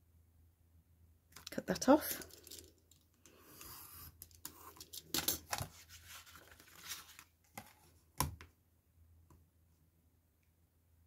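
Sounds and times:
card and ruler rustling: 0:03.4 - 0:08.0.

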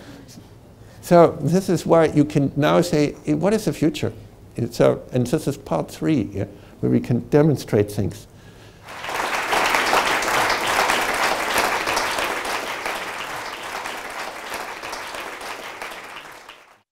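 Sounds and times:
audience applauding: 0:08.8 - 0:16.8.

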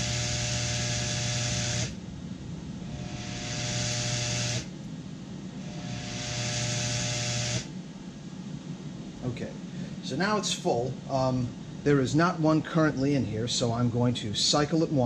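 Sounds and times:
vibratory feeder buzzing: 0:00.0 - 0:07.8.

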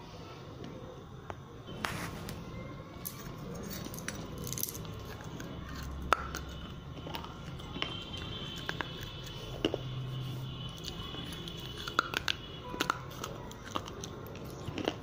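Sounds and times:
teeth cracking clay: 0:03.1 - 0:15.0.

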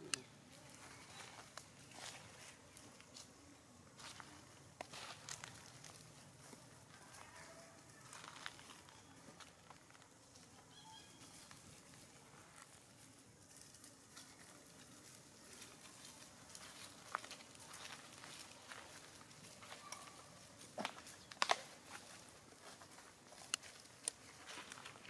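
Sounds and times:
rustling of dry leaf litter: 0:00.0 - 0:25.0
faint high chirp: 0:10.7 - 0:11.5.

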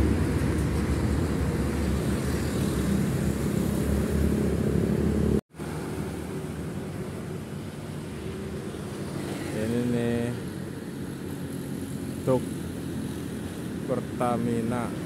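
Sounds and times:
heavy truck engine rumbling: 0:00.0 - 0:05.4
road traffic: 0:00.0 - 0:15.0.

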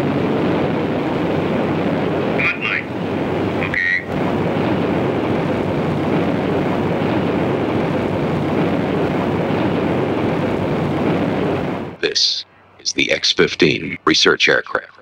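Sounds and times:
aircraft engine roar: 0:00.0 - 0:14.1.

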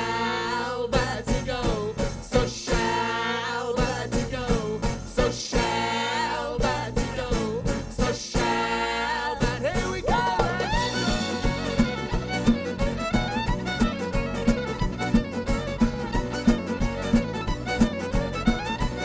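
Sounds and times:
bass guitar: 0:00.0 - 0:19.0
strummed acoustic guitar: 0:00.0 - 0:19.0
drums: 0:01.0 - 0:03.2, 0:03.8 - 0:19.0
fiddle melody: 0:10.2 - 0:19.0.

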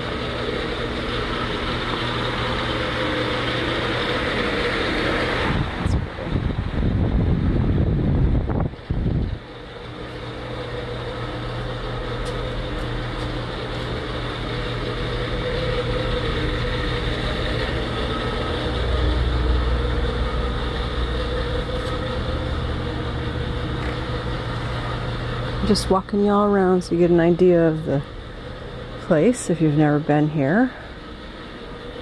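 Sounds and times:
ventilation machinery humming: 0:00.0 - 0:32.0
loud low rumble: 0:05.3 - 0:09.5, 0:11.7 - 0:32.0.

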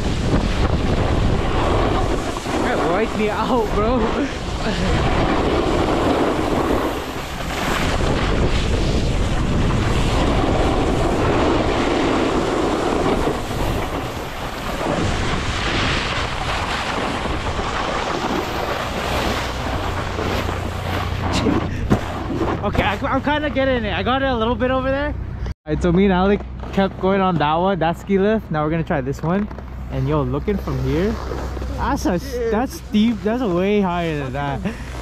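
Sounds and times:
wind on microphone: 0:00.0 - 0:23.4
snowboard scraping over snow: 0:00.0 - 0:24.1, 0:26.6 - 0:35.0.

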